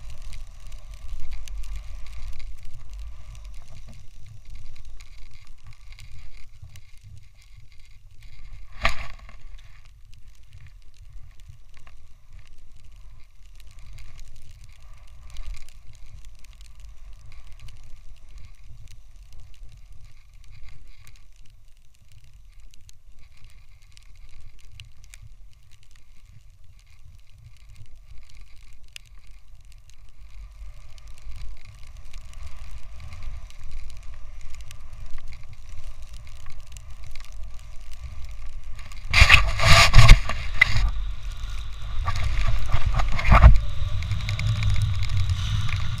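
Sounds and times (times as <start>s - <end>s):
snowboard hissing on snow: 0.0s - 9.8s, 30.2s - 46.0s
wind rumbling on microphone: 0.0s - 46.0s.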